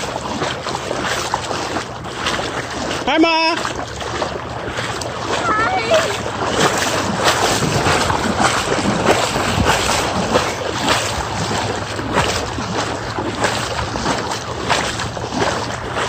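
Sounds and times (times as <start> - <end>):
legs wading through water: 0.0 - 16.0
water splashing: 0.0 - 16.0.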